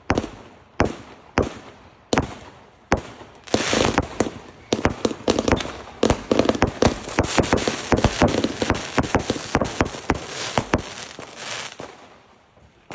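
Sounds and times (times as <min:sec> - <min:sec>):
fireworks banging and crackling: 0:00.0 - 0:12.9
rushing hiss: 0:05.0 - 0:11.8.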